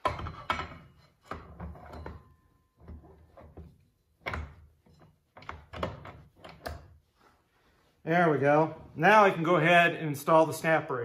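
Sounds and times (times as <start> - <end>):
metal parts clunking and scraping: 0.0 - 6.8.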